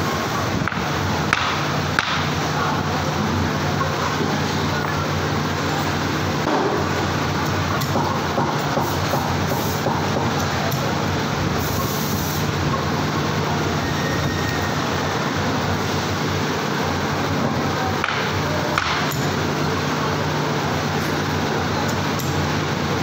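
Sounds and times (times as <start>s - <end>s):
machinery hiss: 8.6s - 17.0s.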